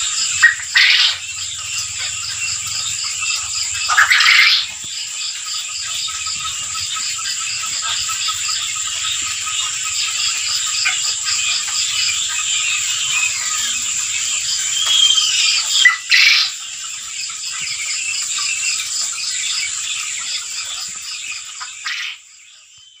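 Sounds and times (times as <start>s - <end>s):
quail chicks chirping: 0.0s - 23.0s.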